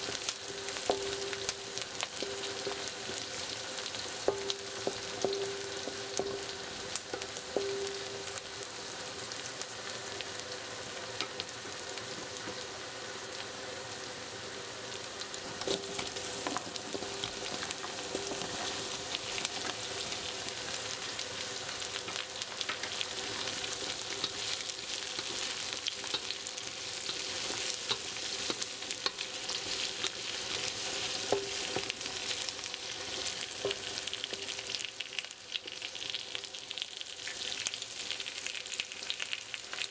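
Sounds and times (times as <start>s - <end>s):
vegetables sizzling in hot oil: 0.0s - 39.9s
spatula scraping a wok: 15.6s - 19.8s.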